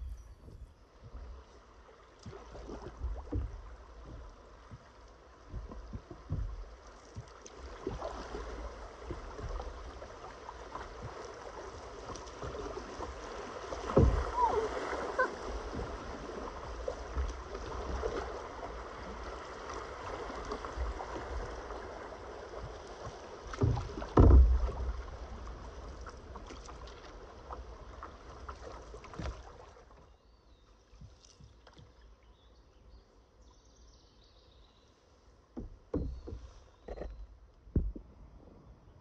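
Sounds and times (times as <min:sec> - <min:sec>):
water rushing around canoe: 0:00.0 - 0:33.8, 0:34.5 - 0:38.9
hollow thump against canoe: 0:02.2 - 0:18.9, 0:20.0 - 0:30.1, 0:35.5 - 0:38.2.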